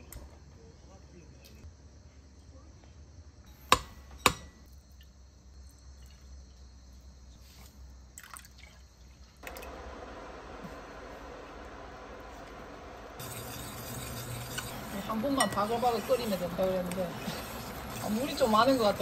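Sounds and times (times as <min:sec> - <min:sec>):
steady rushing hiss: 0:09.7 - 0:19.0
cookware clinking: 0:13.2 - 0:19.0.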